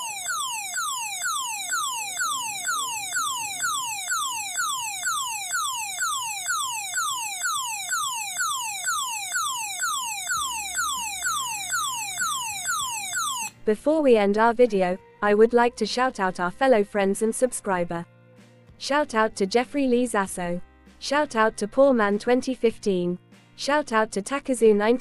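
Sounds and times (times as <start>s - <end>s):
falling whistle alarm tone: 0.0s - 13.5s.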